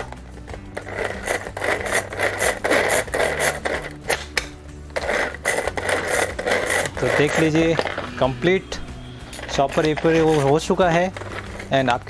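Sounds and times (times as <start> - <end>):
pull-cord chopper rattling whir: 5.0 - 8.1.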